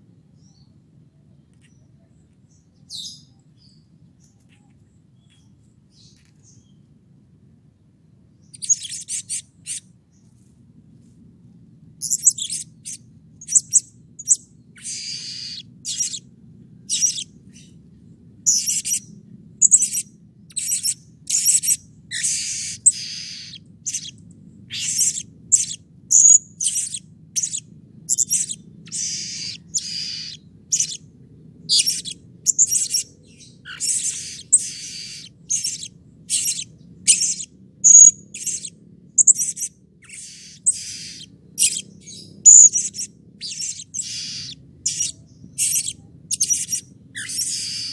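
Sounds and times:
faint low hum: 0:00.0 - 0:47.9
parrot shrill calls: 0:14.8 - 0:16.2, 0:19.6 - 0:24.1, 0:24.7 - 0:31.0, 0:33.7 - 0:41.8, 0:42.5 - 0:47.9.

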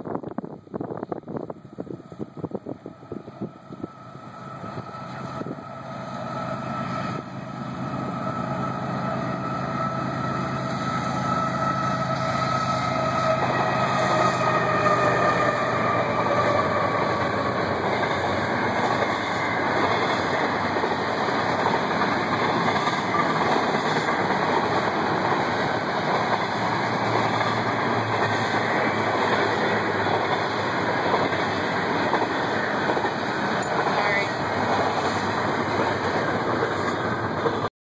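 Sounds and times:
locomotives passing: 0:00.0 - 0:37.7
train cars rolling: 0:00.0 - 0:37.7.

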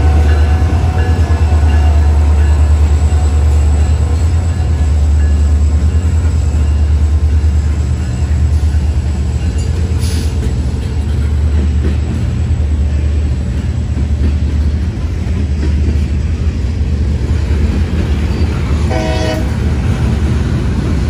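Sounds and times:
freight train rumbling past: 0:00.0 - 0:21.0.

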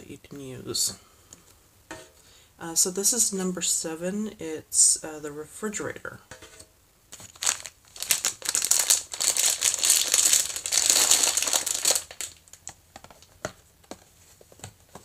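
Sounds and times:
plastic packaging crinkling: 0:07.1 - 0:13.4.

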